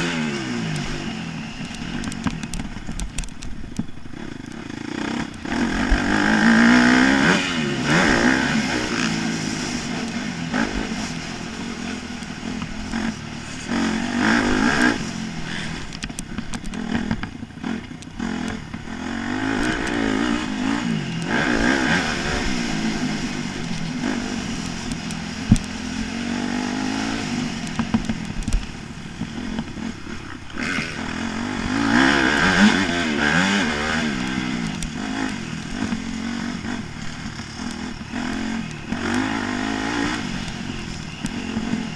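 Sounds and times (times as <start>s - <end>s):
motocross bike engine revving: 0.0s - 41.9s.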